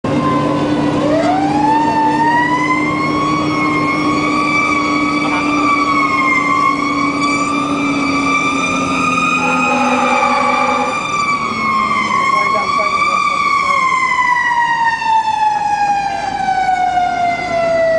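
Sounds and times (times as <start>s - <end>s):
fire engine siren wailing: 0.0s - 17.9s
truck engine running: 6.8s - 11.8s.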